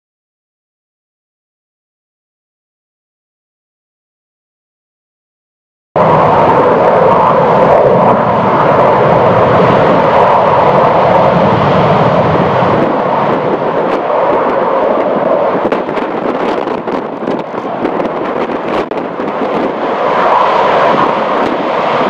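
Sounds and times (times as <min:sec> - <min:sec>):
loud jet roar: 0:06.0 - 0:22.0.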